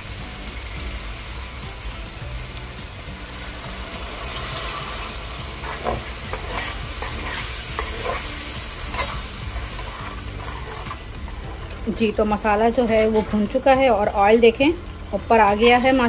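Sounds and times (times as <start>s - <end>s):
masala sizzling in oil: 0.0s - 16.0s
metal spoon scraping a pan: 4.1s - 11.8s, 12.4s - 14.6s, 15.3s - 16.0s.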